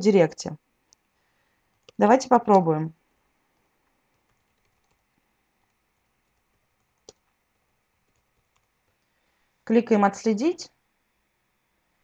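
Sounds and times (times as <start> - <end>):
faint keyboard typing: 0.8 - 2.2, 3.0 - 9.3.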